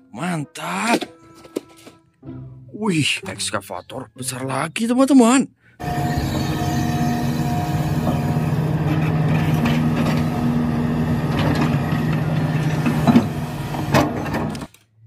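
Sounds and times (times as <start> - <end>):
excavator diesel engine: 5.8 - 14.7.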